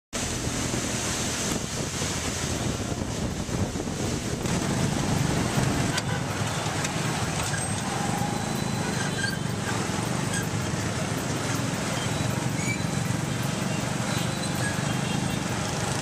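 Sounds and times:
road noise: 0:00.1 - 0:16.0.

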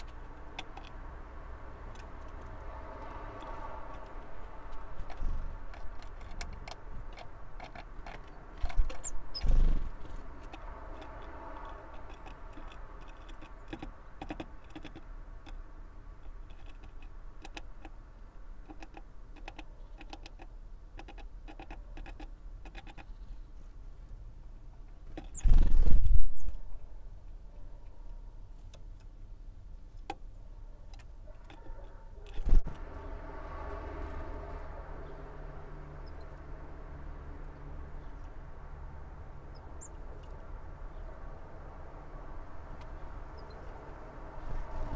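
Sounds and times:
bird pecking on wooden tray: 0:01.9 - 0:15.6, 0:18.6 - 0:23.1.

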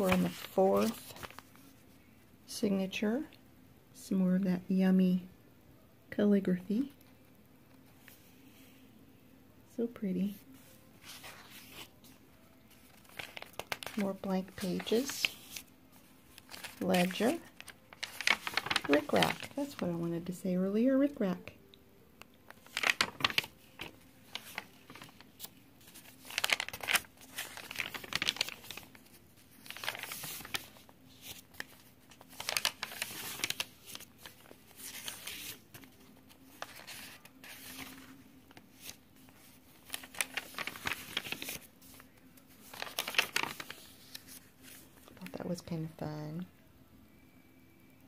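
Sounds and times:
paper pages rustling and crinkling: 0:00.0 - 0:02.0, 0:10.2 - 0:20.1, 0:22.5 - 0:45.7.

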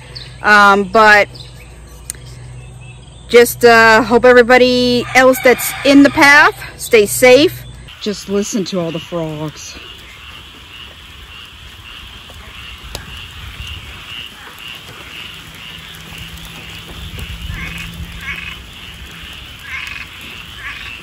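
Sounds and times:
frogs calling: 0:00.0 - 0:21.0.

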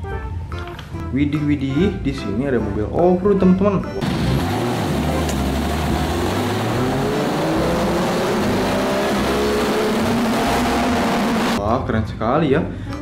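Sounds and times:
buggy engine revving: 0:04.0 - 0:11.6.

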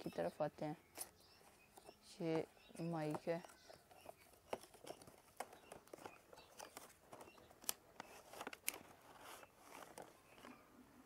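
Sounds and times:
card clicks scrapes and rustles: 0:03.3 - 0:10.6.

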